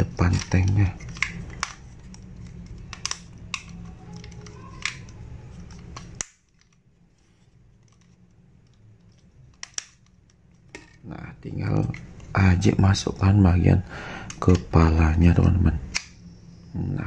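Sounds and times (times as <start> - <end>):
low hum: 0.0 - 17.0
plastic toy clicks and snaps: 0.3 - 6.8, 9.5 - 10.4, 15.9 - 16.2.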